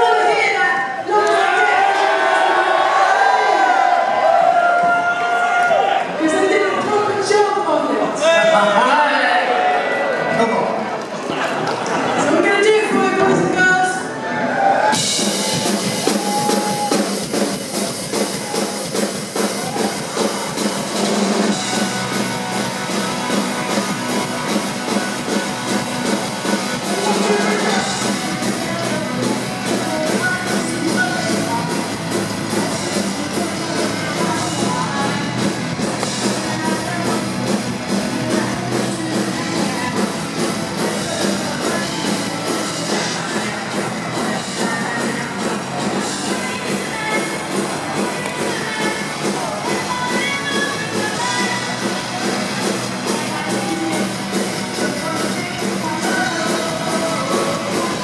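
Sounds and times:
electric guitars: 9.5s - 58.0s
drum kit: 14.6s - 58.0s
person singing: 15.2s - 58.0s.

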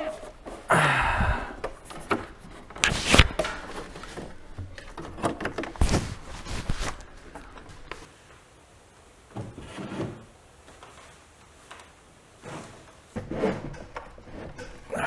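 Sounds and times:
tv rubbing and scraping: 2.7s - 4.4s, 5.6s - 8.0s, 12.4s - 14.8s.

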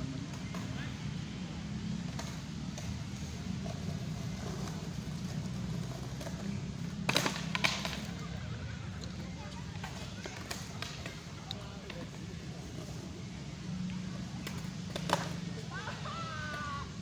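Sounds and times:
skateboard clacking on concrete: 0.2s - 0.9s, 2.0s - 13.1s, 14.1s - 16.9s
skateboard wheel clicks: 2.1s - 8.3s, 8.9s - 13.0s, 13.9s - 15.4s.

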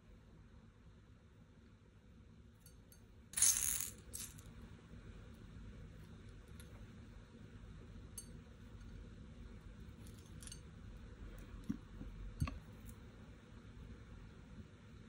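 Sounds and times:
low steady hum: 0.0s - 15.0s
glass beads clinking on porcelain: 2.6s - 4.5s, 10.0s - 10.6s.

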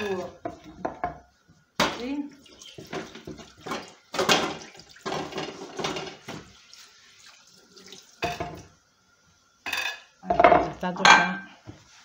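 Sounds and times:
tap water splashing on boards: 1.8s - 8.7s.

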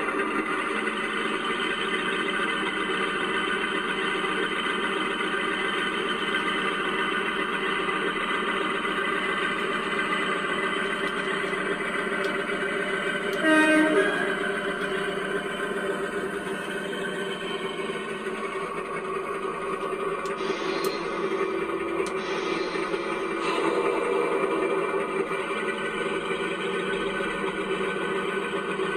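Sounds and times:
model locomotive diesel engine sound: 0.0s - 28.9s
short horn blast: 13.3s - 14.5s.

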